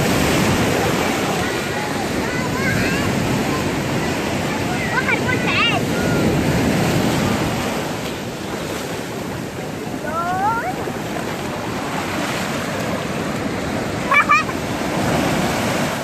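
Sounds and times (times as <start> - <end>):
sea waves on sandy shore: 0.0 - 16.0
child's voice: 1.2 - 6.4.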